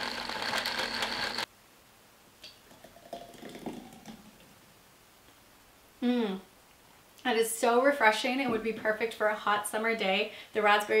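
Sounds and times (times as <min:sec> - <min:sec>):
smoothie pouring into glass: 0:00.0 - 0:01.4, 0:02.7 - 0:04.3
blender running: 0:00.0 - 0:01.5.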